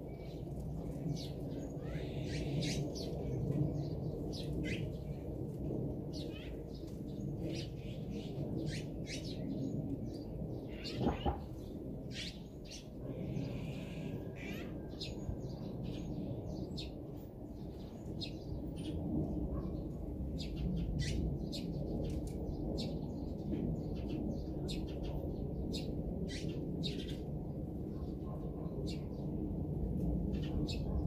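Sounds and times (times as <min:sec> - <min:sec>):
small birds chirping: 0:06.1 - 0:17.0.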